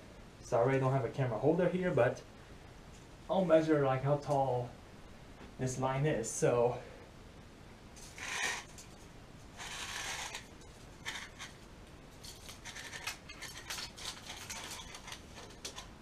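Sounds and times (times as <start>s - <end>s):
tape measure scraping: 8.0s - 8.9s, 9.6s - 11.6s, 12.2s - 15.9s.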